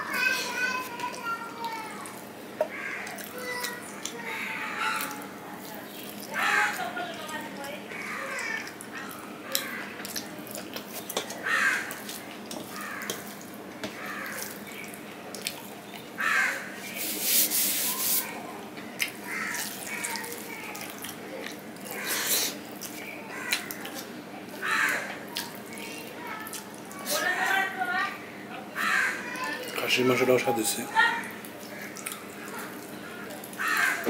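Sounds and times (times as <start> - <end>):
fingers mixing food on metal plate: 0.2 - 16.0, 16.6 - 25.6
chewing: 0.9 - 16.2, 19.0 - 27.5, 31.2 - 34.0
bird cawing: 2.6 - 3.6, 4.2 - 5.2, 7.9 - 10.0, 11.4 - 12.0, 12.7 - 13.2, 13.9 - 14.8, 16.2 - 16.8, 19.2 - 20.2, 23.3 - 23.9, 24.6 - 25.1, 28.8 - 29.5, 31.8 - 34.0.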